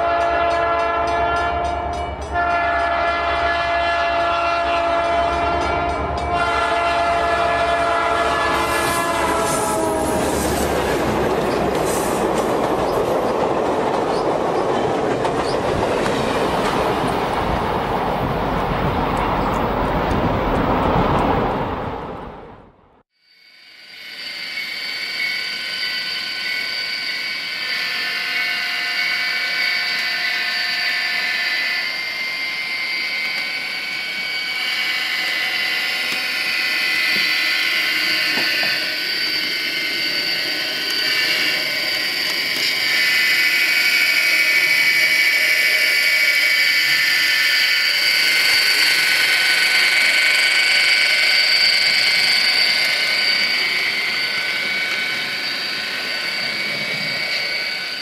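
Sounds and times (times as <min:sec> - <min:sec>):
held high tones: 0:23.3 - 0:58.0
small electric motors whining: 0:23.4 - 0:58.0.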